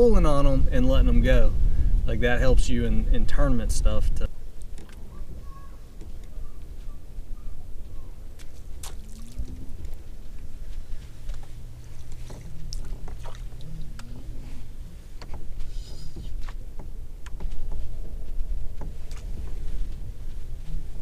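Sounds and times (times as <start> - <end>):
steady low hum: 0.0 - 21.0
low rumble: 5.0 - 21.0
camera rubbing against jacket: 9.4 - 16.7.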